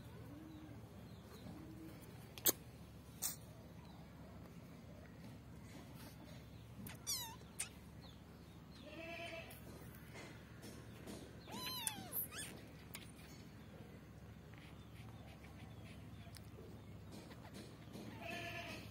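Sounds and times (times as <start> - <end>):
kitten mewing: 6.8 - 7.8, 11.5 - 13.1.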